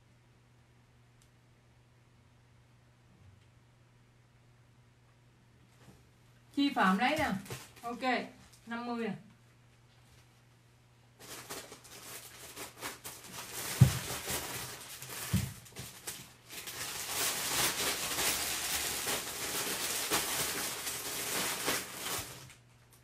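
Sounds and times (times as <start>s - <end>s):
plastic bag crinkling: 6.8s - 8.7s, 11.2s - 23.0s.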